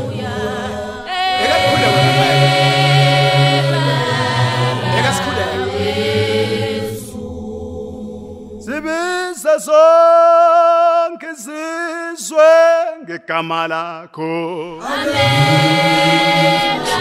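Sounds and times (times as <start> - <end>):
single voice singing lead: 0.0 - 7.3, 8.6 - 17.0
choir singing a cappella: 0.0 - 9.0, 14.6 - 17.0.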